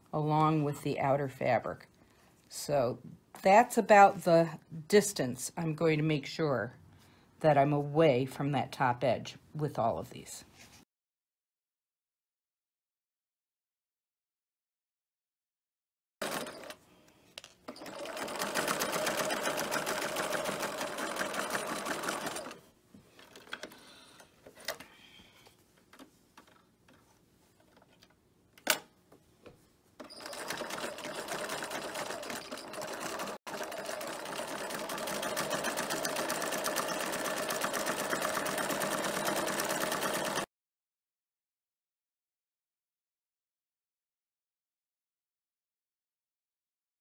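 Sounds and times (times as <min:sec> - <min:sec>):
sewing machine running: 0:16.2 - 0:16.8, 0:17.7 - 0:22.6, 0:30.0 - 0:40.5.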